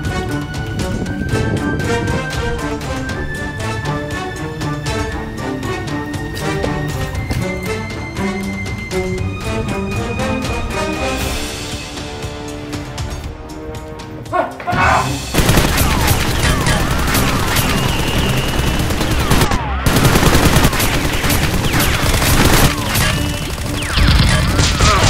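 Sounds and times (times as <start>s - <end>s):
background music: 0.0s - 25.0s
automatic gunfire sound effects: 15.4s - 25.0s.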